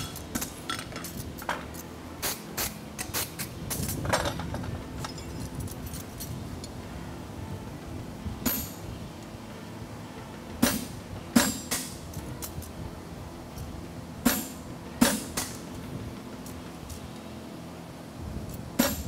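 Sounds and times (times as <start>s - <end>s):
hammer striking punch on anvil: 10.6s - 12.0s, 14.2s - 15.6s, 18.8s - 19.0s.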